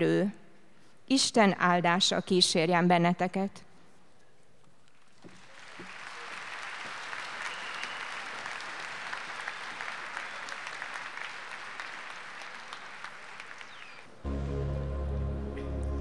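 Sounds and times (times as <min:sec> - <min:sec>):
crowd applause: 0:05.3 - 0:15.0.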